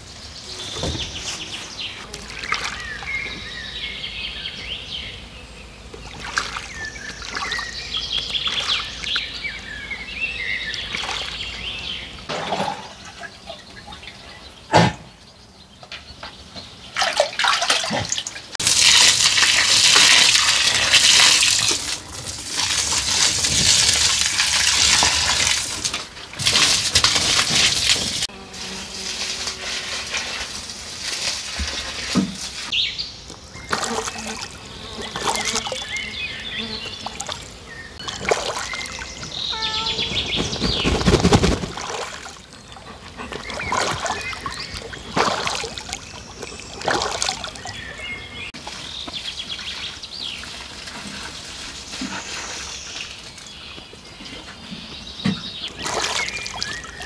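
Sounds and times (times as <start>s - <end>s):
water running and splashing: 2.1s - 3.2s, 6.1s - 9.2s, 17.0s - 28.3s, 37.0s - 53.4s, 55.7s - 57.0s
bird chirps: 32.7s - 41.5s.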